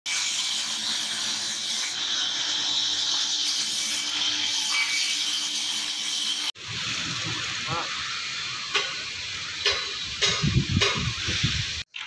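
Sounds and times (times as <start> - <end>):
band saw blade cutting wood: 0.1 - 6.6.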